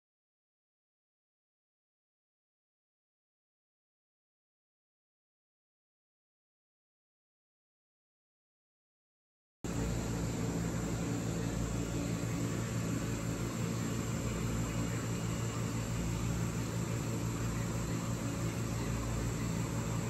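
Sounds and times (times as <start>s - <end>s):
low machine hum with hiss: 9.7s - 20.0s.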